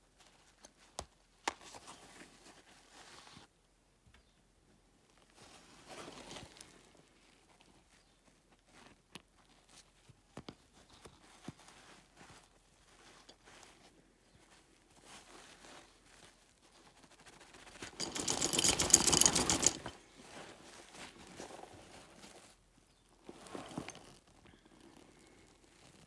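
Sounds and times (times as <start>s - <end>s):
nylon bag rustling: 17.8s - 22.6s, 23.2s - 26.0s.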